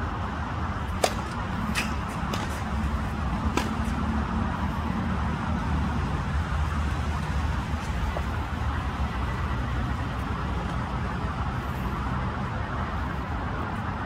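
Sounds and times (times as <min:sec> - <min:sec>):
tennis racket striking ball: 0:00.9 - 0:04.1.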